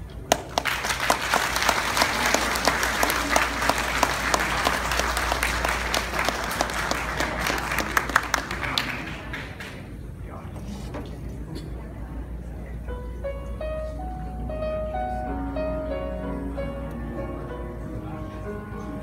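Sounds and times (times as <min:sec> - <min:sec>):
audience applauding: 0:00.3 - 0:10.0.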